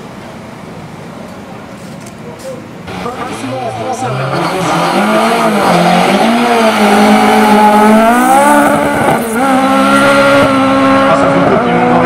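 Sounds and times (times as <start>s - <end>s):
race car engine revving: 2.9s - 12.0s.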